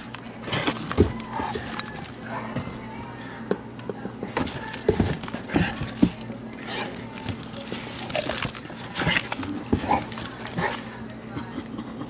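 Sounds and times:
collar tags jingling: 0:00.0 - 0:02.3, 0:04.3 - 0:11.2
dogs scuffling and thumping: 0:00.0 - 0:02.9, 0:04.3 - 0:11.1
dog vocal sounds: 0:05.1 - 0:11.0.

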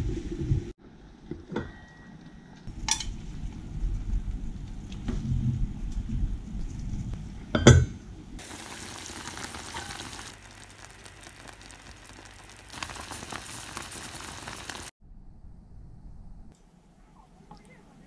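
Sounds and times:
soup boiling and bubbling: 0:08.4 - 0:15.0.

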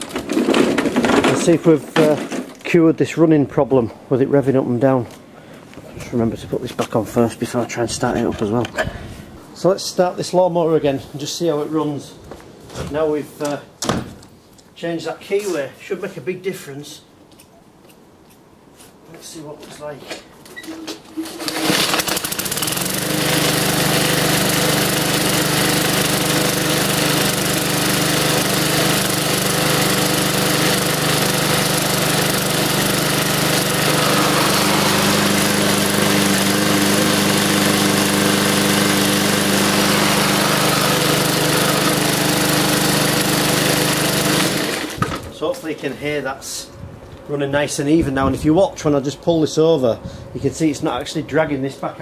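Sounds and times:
lawnmower engine pull-started: 0:00.0 - 0:02.7, 0:20.6 - 0:45.3
lawnmower engine running evenly: 0:21.4 - 0:45.1.

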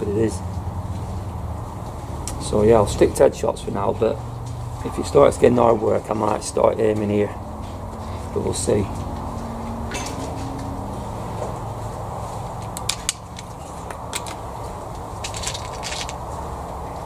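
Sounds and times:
air rifle clicks and rustles: 0:12.6 - 0:16.4.

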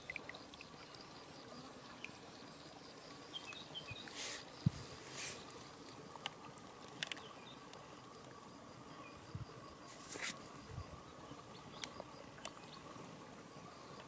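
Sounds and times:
insect chirping: 0:00.0 - 0:14.0
faint rustles: 0:04.0 - 0:05.7, 0:09.8 - 0:10.7.

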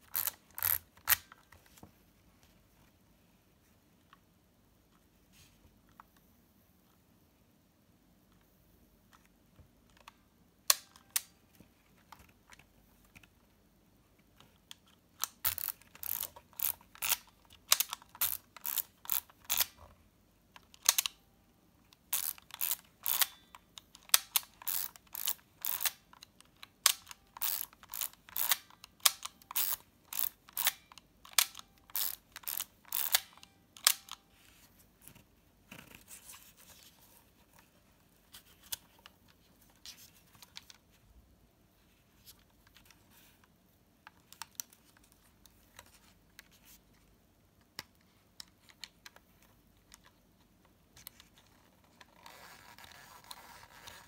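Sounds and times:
thumbwheel ratcheting: 0:00.0 - 0:01.2, 0:15.4 - 0:19.7, 0:22.1 - 0:23.4, 0:24.1 - 0:26.0, 0:27.4 - 0:30.8, 0:31.4 - 0:34.1.

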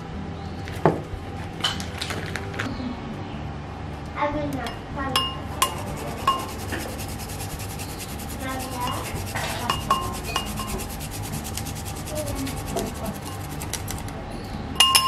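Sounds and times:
garlic rasping on grater: 0:05.6 - 0:14.0.

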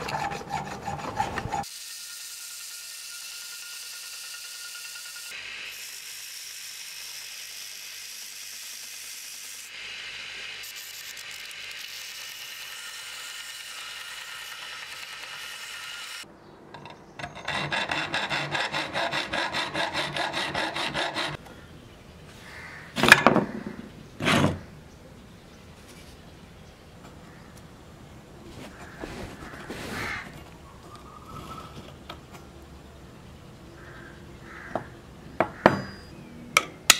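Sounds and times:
belt sander grinding metal: 0:00.0 - 0:09.7, 0:10.5 - 0:21.4
hand-sawing strokes: 0:00.0 - 0:16.2, 0:16.8 - 0:21.4, 0:24.2 - 0:24.6.

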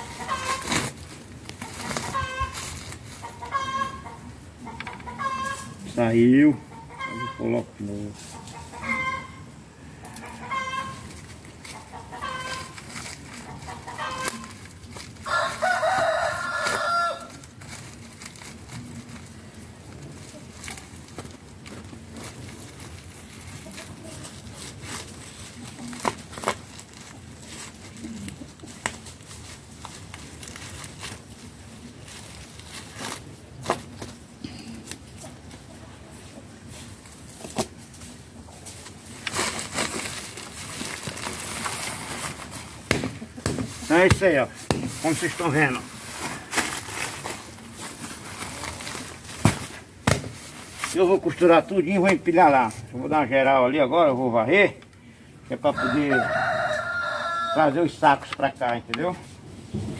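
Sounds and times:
chicken clucks: 0:00.0 - 0:00.7, 0:01.6 - 0:05.9, 0:06.6 - 0:07.5, 0:08.2 - 0:14.6
sacks rustling: 0:00.0 - 0:04.0, 0:10.8 - 0:34.3, 0:36.6 - 0:52.9
rooster crowing: 0:15.2 - 0:17.5, 0:55.6 - 0:57.9.

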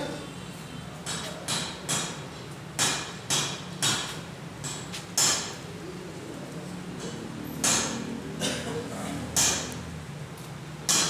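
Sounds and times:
sharp knocks: 0:07.6 - 0:08.1, 0:09.4 - 0:09.7.

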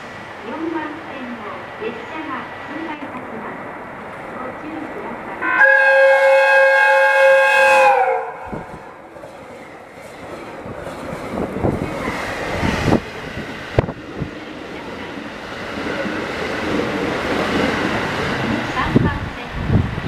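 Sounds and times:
train rushing past: 0:00.0 - 0:20.0
train horn sliding down: 0:05.4 - 0:08.7
rush of air and blown snow: 0:10.7 - 0:14.4.

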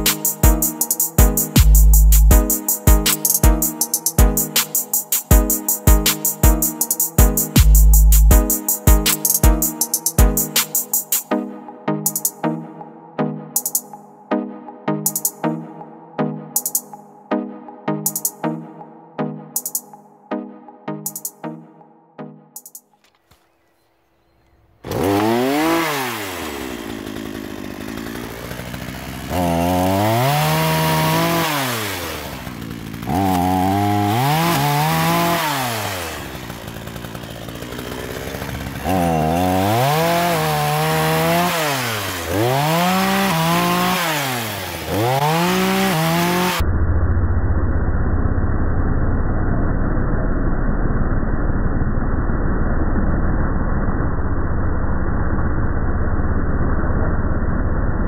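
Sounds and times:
chainsaw revving: 0:24.8 - 0:46.6
muffled drone: 0:46.6 - 0:58.0.

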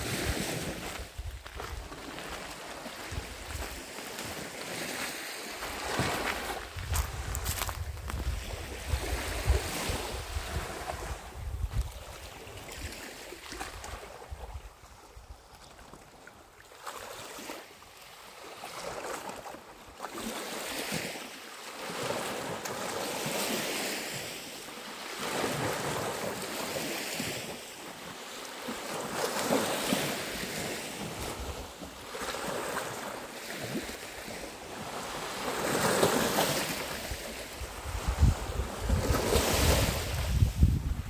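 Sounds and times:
wind on microphone: 0:00.0 - 0:04.4, 0:05.7 - 0:12.9, 0:36.8 - 0:41.0
sea waves lapping on shore: 0:00.0 - 0:41.0.

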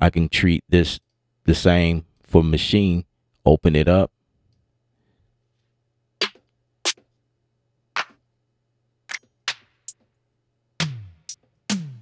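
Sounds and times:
drum machine hits: 0:09.5 - 0:09.8, 0:10.8 - 0:12.0.

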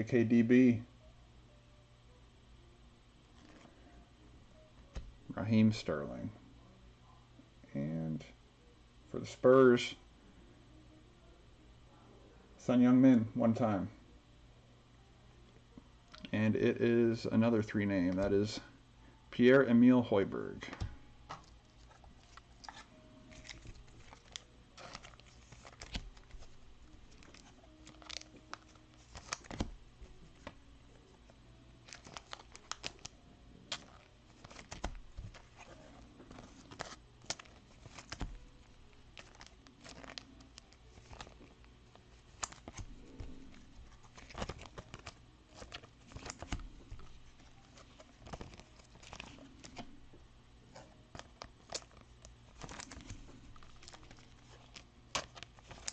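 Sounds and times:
plastic wrappers tearing and crinkling: 0:21.8 - 0:29.7, 0:31.8 - 0:49.9, 0:51.1 - 0:55.9.

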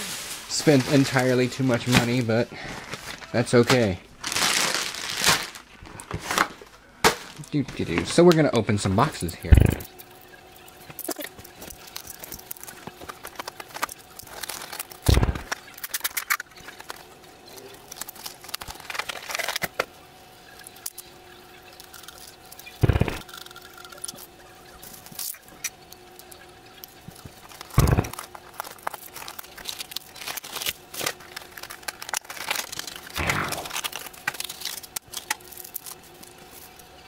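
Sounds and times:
packaging rustling and crinkling: 0:00.0 - 0:08.2, 0:10.9 - 0:21.1, 0:26.2 - 0:37.0.

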